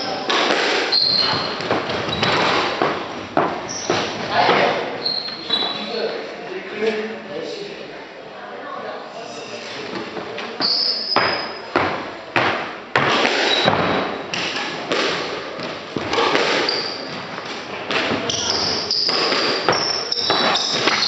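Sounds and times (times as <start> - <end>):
shoe soles squeaking: 0.0 - 4.2, 4.9 - 6.2, 10.5 - 11.8, 13.4 - 14.4, 16.0 - 21.0.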